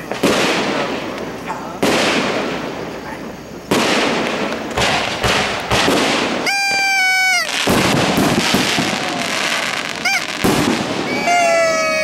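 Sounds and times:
fireworks bangs: 0:00.0 - 0:12.0
fireworks crackling: 0:00.0 - 0:12.0
fireworks whistle: 0:03.7 - 0:12.0.

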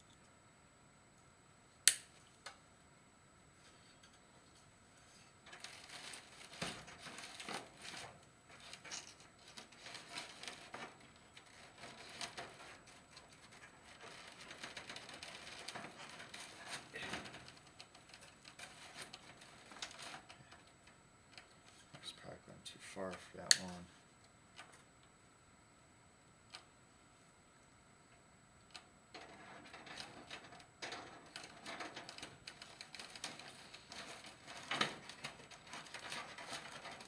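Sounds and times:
chicken wire rustling and scraping: 0:05.0 - 0:20.7, 0:29.2 - 0:37.0.

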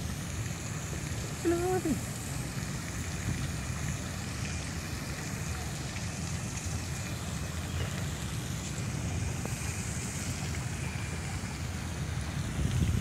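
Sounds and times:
fountain water hissing: 0:00.0 - 0:13.0
wind buffeting microphone: 0:06.0 - 0:13.0.

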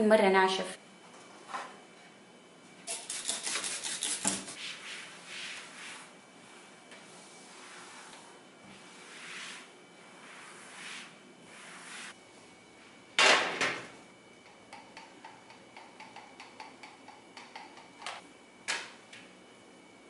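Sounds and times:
cloth wiping countertop: 0:03.5 - 0:12.2.

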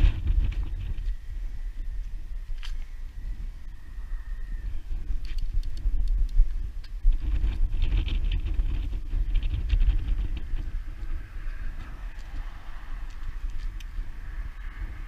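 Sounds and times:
wind buffeting microphone: 0:00.0 - 0:15.0
light clicks and ticks: 0:05.2 - 0:07.0.

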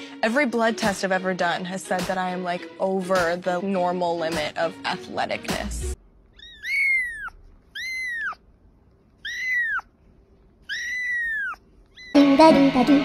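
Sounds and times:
kitten mewing: 0:06.3 - 0:08.5, 0:09.2 - 0:10.0, 0:10.6 - 0:12.4.

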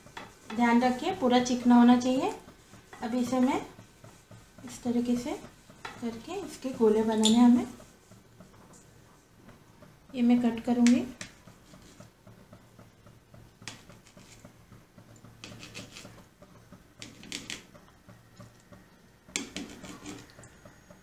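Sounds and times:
short scrapes on steel plate: 0:15.4 - 0:16.2, 0:19.5 - 0:20.3.

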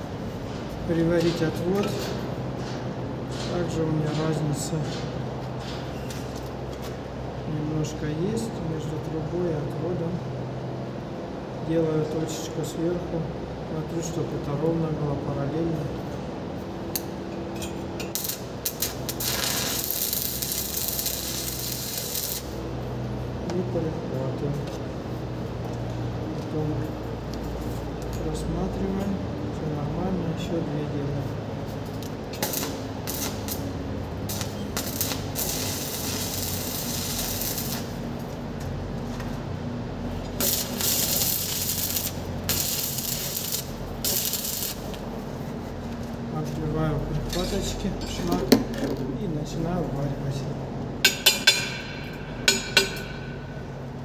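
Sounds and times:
welding arc crackling hiss: 0:18.0 - 0:23.0, 0:32.0 - 0:38.5, 0:40.1 - 0:45.1.

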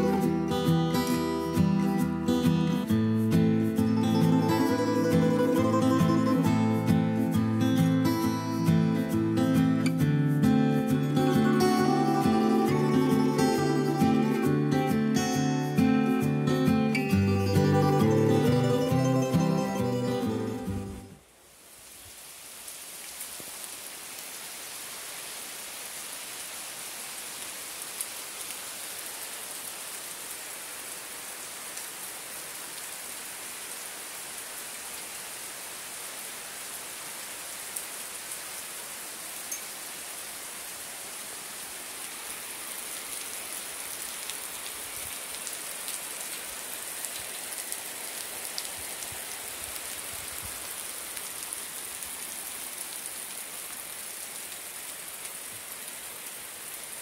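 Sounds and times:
rain on foliage: 0:00.0 - 0:57.0.

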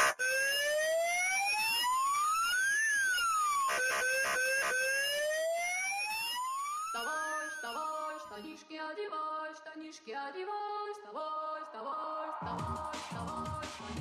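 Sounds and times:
short siren bursts: 0:00.0 - 0:08.4
siren wailing: 0:00.0 - 0:08.4.

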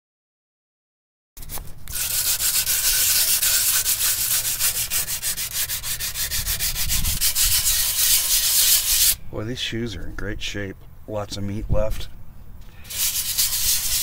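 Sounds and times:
sandpaper rubbing brake shoe: 0:01.4 - 0:09.2, 0:12.8 - 0:14.0.

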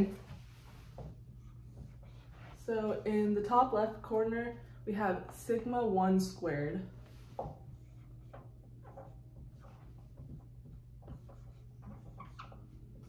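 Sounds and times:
steady low hum: 0:00.0 - 0:13.0
marker writing on whiteboard: 0:00.1 - 0:03.0, 0:07.0 - 0:13.0.

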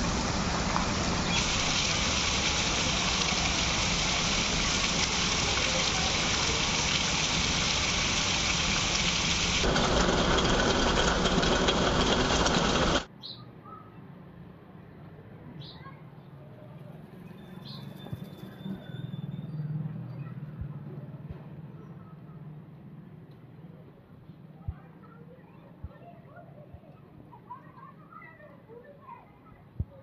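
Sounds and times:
heavy rain falling: 0:00.0 - 0:13.1.

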